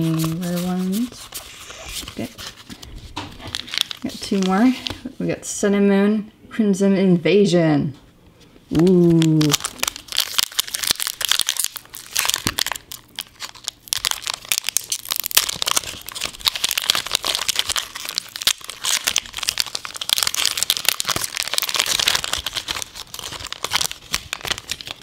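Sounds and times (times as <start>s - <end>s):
foil wrapper crinkling: 0.0s - 5.0s, 8.8s - 25.0s.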